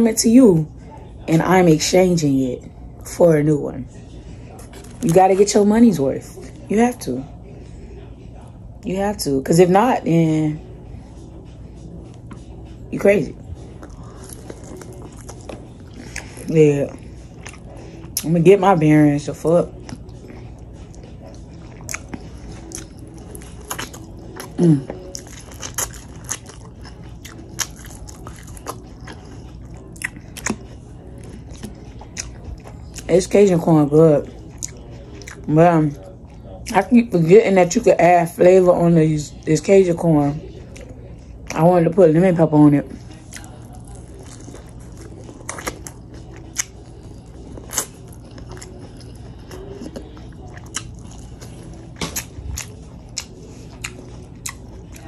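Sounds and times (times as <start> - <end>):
close chewing with lip smacks: 13.4 - 18.4, 19.2 - 36.9, 42.9 - 55.0.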